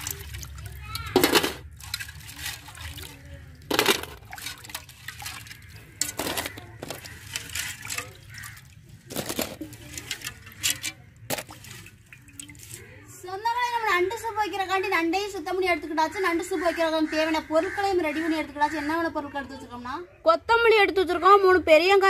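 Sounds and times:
water splashing in steel bowl: 0.0 - 13.6.

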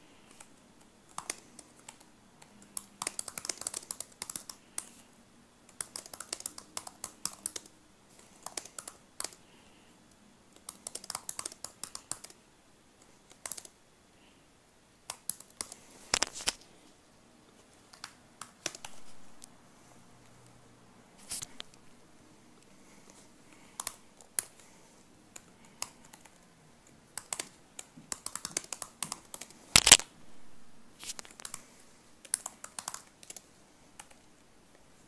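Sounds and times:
typing on computer keyboard: 0.2 - 5.0, 5.7 - 9.5, 10.5 - 12.4, 13.1 - 13.8, 15.1 - 16.3, 17.8 - 19.0, 23.6 - 24.6, 25.3 - 26.4, 27.1 - 30.0, 31.3 - 34.3.

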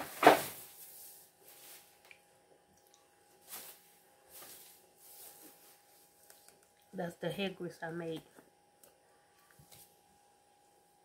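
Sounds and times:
soft rustling and handling: 0.3 - 2.3, 3.2 - 6.9, 9.2 - 10.0.

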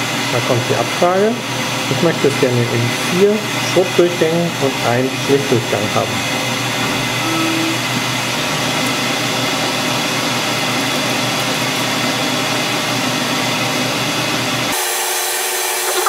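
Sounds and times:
metal lathe running: 0.0 - 16.0
short tone: 7.2 - 8.0.

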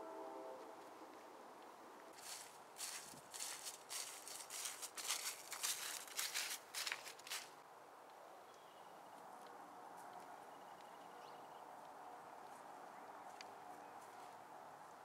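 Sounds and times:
footsteps on dry leaves: 2.2 - 7.6.

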